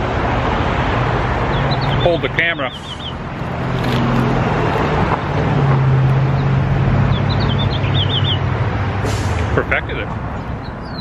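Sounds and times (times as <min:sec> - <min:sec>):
road noise: 0:00.0 - 0:11.0
vehicle engine passing: 0:00.0 - 0:11.0
bird chirping: 0:01.5 - 0:03.2, 0:06.3 - 0:08.5, 0:10.3 - 0:11.0.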